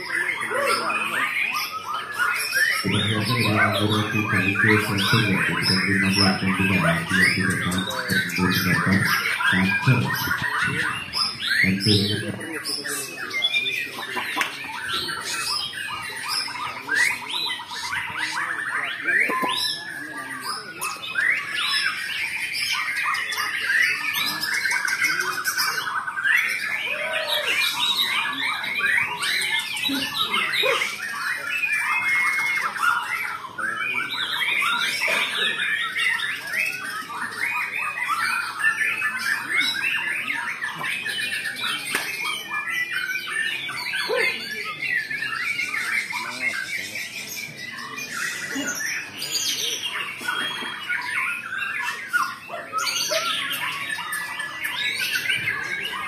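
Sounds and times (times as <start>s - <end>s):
many songbirds singing: 0.0s - 56.0s.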